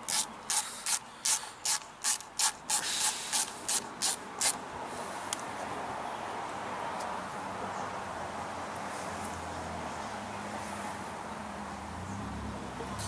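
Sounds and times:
hand ratchet clicking: 0:00.0 - 0:04.6.

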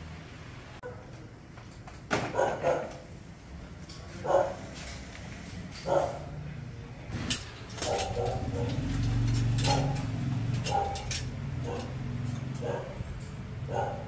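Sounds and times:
dog barking: 0:02.3 - 0:03.0, 0:04.2 - 0:04.7, 0:05.8 - 0:06.3, 0:07.8 - 0:08.9, 0:10.7 - 0:11.0, 0:11.6 - 0:12.0, 0:12.6 - 0:14.0
light metal clinks and rattles: 0:07.2 - 0:14.0.

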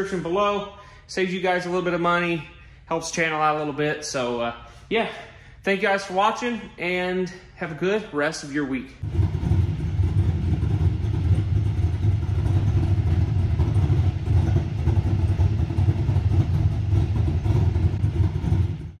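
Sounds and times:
engine rumbling: 0:08.9 - 0:19.0.

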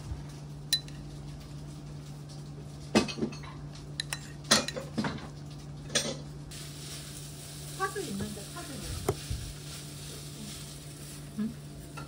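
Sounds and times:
cutlery clinking against dishes: 0:03.0 - 0:05.2.

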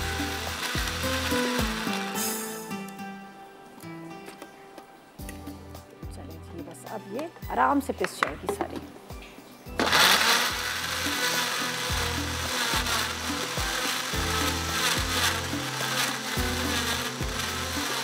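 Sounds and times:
electric blender grinding: 0:00.0 - 0:02.8, 0:09.8 - 0:18.0.

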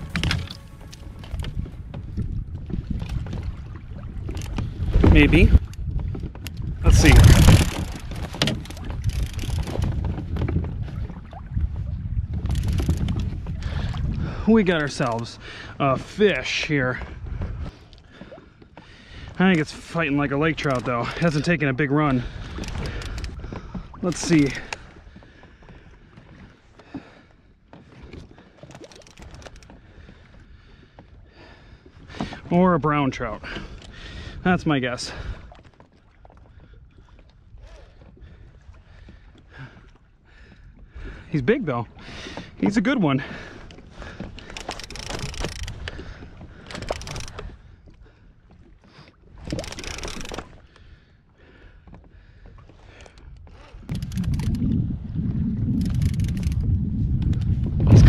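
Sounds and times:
wind buffeting microphone: 0:00.0 - 0:18.3, 0:52.3 - 0:58.0
waves lapping against plastic hull: 0:00.0 - 0:58.0
small clicks and knocks: 0:07.2 - 0:10.6, 0:12.4 - 0:13.3, 0:28.7 - 0:29.8, 0:44.4 - 0:46.0, 0:46.6 - 0:47.5, 0:49.4 - 0:50.5
low wash of water: 0:53.5 - 0:58.0.

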